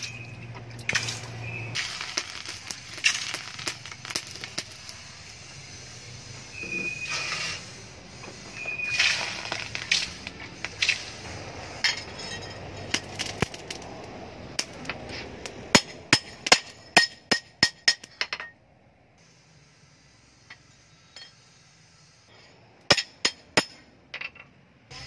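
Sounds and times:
hot blade quenching hiss: 1.0s - 13.8s, 19.2s - 23.7s.

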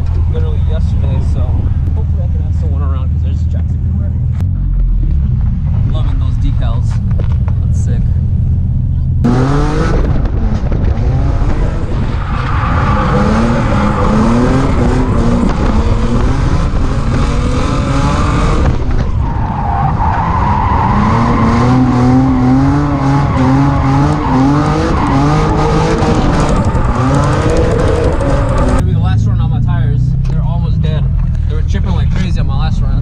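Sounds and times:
car engine revving hard: 9.2s - 29.2s
tires squealing and skidding: 10.5s - 28.8s.

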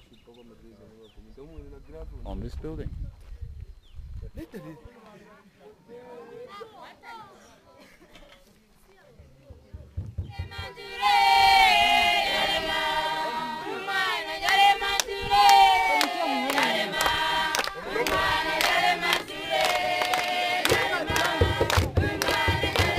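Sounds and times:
children singing together: 10.4s - 22.9s
sharp handclaps: 14.4s - 22.9s.

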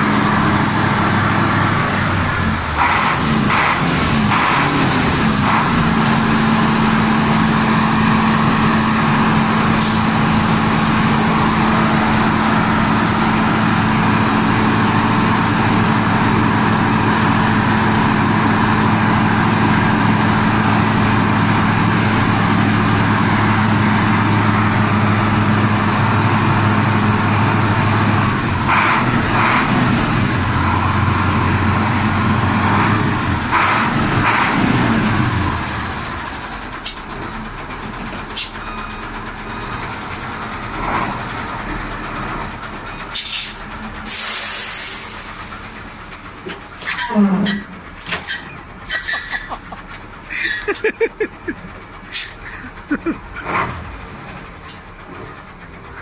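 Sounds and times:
truck diesel engine idling: 0.0s - 56.0s
short hisses: 52.1s - 52.4s.

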